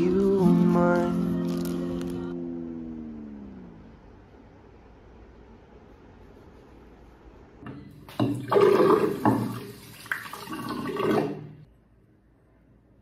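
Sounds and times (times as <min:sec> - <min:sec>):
tap water splashing into sink: 0:07.7 - 0:11.5.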